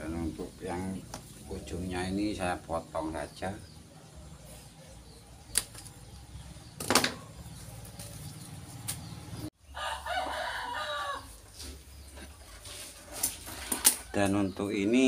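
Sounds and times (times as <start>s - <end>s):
rooster crowing: 9.7s - 11.4s.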